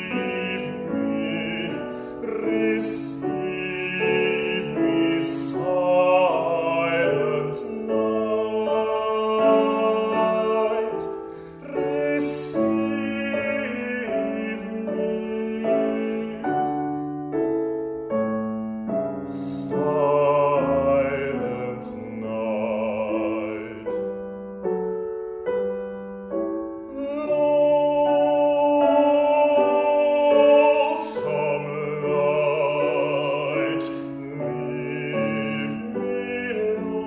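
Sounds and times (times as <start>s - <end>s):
man singing classical: 0.0s - 37.0s
piano chords: 0.0s - 37.0s.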